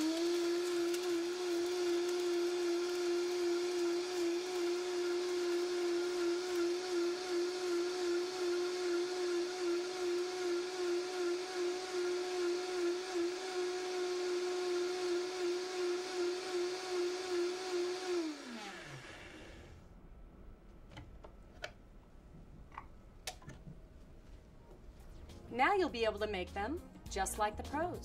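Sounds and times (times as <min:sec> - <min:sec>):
blender motor whining: 0:00.0 - 0:19.8.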